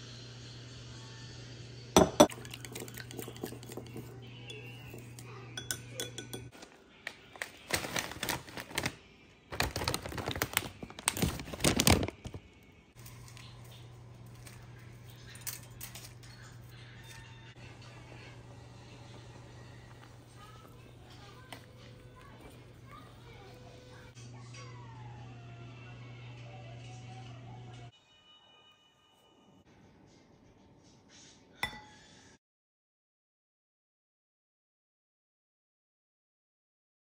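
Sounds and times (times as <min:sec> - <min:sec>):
utensils clinking against glass bowl: 0:02.0 - 0:06.6, 0:14.4 - 0:17.5
plastic bag crinkling: 0:06.5 - 0:13.7.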